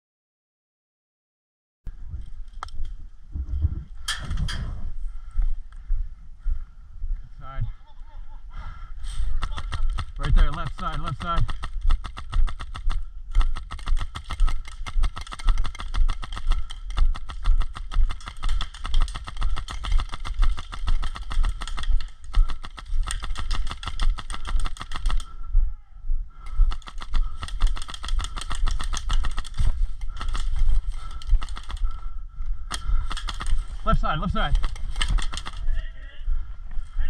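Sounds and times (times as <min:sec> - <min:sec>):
airsoft guns firing: 0:09.3 - 0:25.3, 0:26.5 - 0:32.0, 0:32.7 - 0:35.8.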